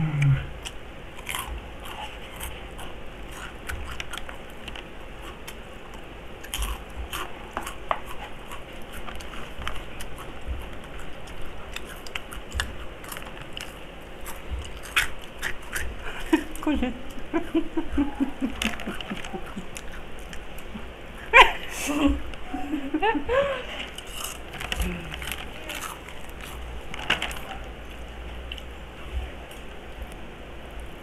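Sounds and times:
crisp crunching while chewing: 0:00.6 - 0:16.7, 0:18.2 - 0:20.8, 0:23.7 - 0:28.7.

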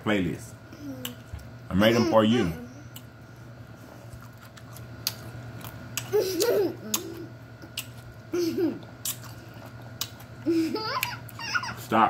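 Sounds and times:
girl giggling: 0:06.1 - 0:07.4, 0:08.3 - 0:08.9, 0:10.4 - 0:11.8.

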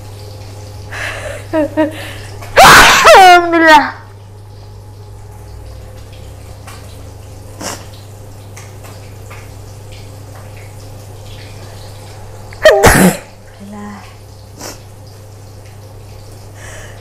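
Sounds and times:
woman sneezing: 0:02.6 - 0:03.4, 0:12.6 - 0:13.3.

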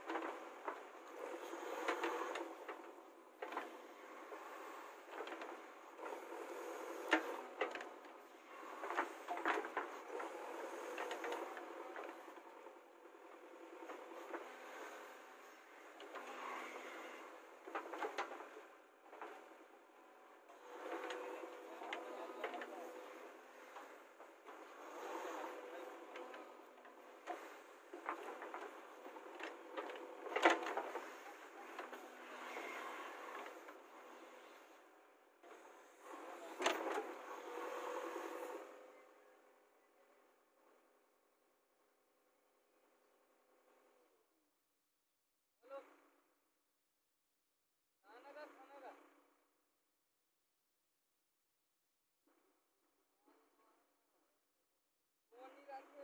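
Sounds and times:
backhoe engine under load: 0:00.0 - 0:40.8, 0:45.8 - 0:46.2.

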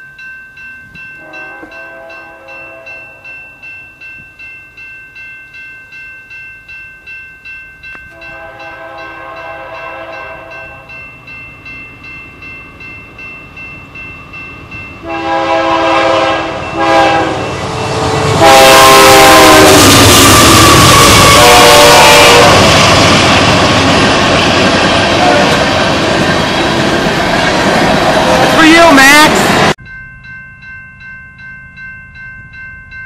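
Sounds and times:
crossing bell dinging: 0:00.0 - 0:33.0
locomotive air horn blasts: 0:01.2 - 0:03.0, 0:08.2 - 0:10.9, 0:15.0 - 0:22.8, 0:25.2 - 0:25.6.

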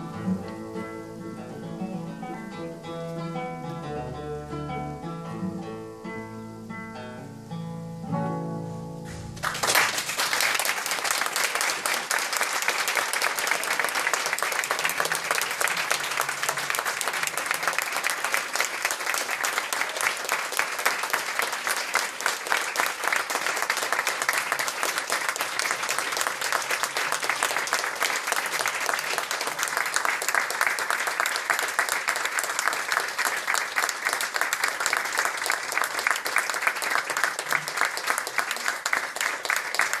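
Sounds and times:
audience applauding: 0:09.1 - 0:40.0.

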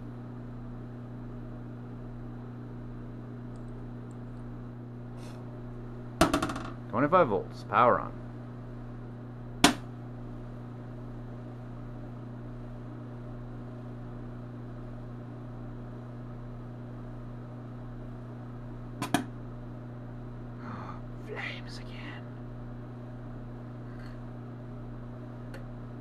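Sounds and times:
mains hum: 0:00.0 - 0:26.0
capacitor venting pops: 0:06.1 - 0:06.9, 0:09.6 - 0:10.0, 0:19.0 - 0:19.4.

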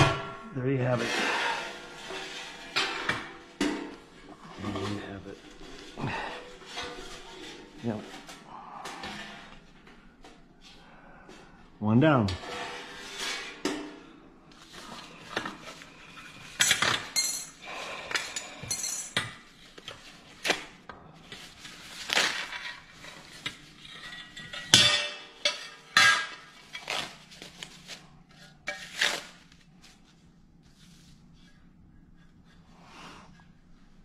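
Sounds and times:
paper wrapping rustling: 0:21.3 - 0:23.4.

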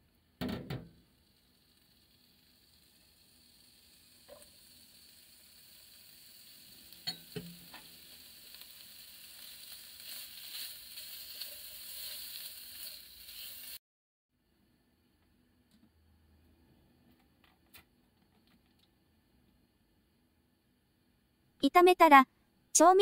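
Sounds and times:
meat and mushrooms sizzling in pan: 0:00.1 - 0:13.8.

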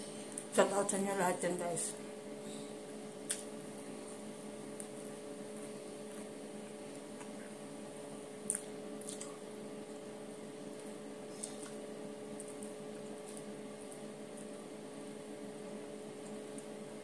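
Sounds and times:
wet eating clicks: 0:08.5 - 0:09.4.

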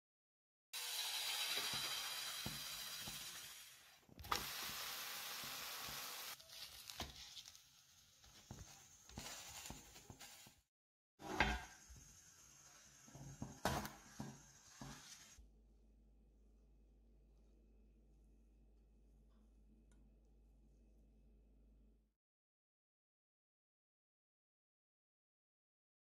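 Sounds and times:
crepe sizzling in a pan: 0:00.8 - 0:10.6, 0:11.2 - 0:15.4.

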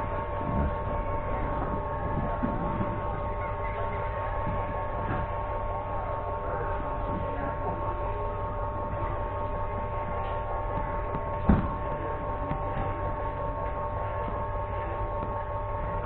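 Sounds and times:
room hum with low rumble: 0:00.0 - 0:16.0
dull thump: 0:11.1 - 0:11.8.

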